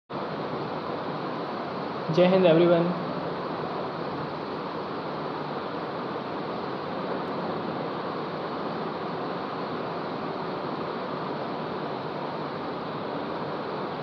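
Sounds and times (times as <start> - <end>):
ceiling fan air rushing: 0.1 - 14.0.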